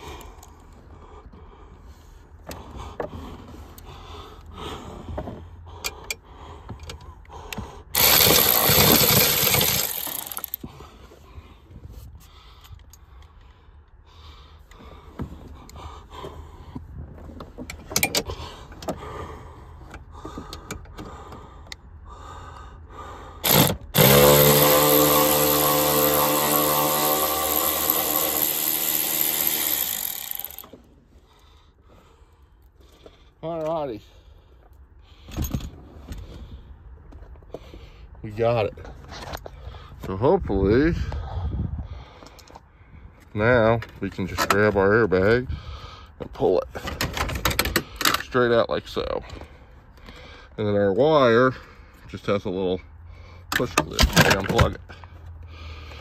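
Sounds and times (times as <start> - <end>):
hand ratchet clicking: 8.0 - 10.6, 23.4 - 30.8.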